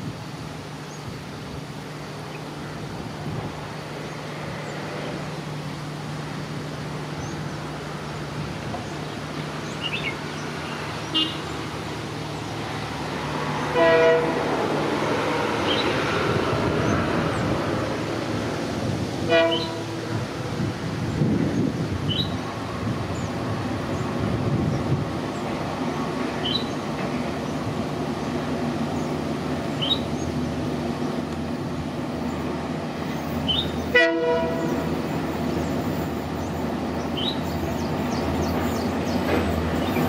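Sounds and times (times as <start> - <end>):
diesel locomotive engine drone: 0.0 - 40.0
train wheels rumbling: 0.0 - 40.0
train horn blasts: 13.6 - 14.6, 19.2 - 20.2, 33.9 - 34.9.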